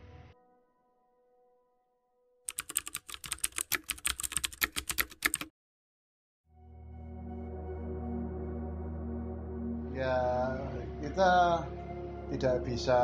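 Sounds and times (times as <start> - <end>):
rapid keyboard key clicks: 2.5 - 5.5
low music drone: 6.6 - 13.0.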